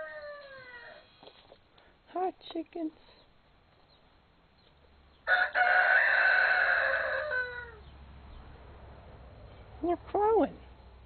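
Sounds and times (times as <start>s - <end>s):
rooster crowing: 0.0s - 1.0s, 5.2s - 7.9s.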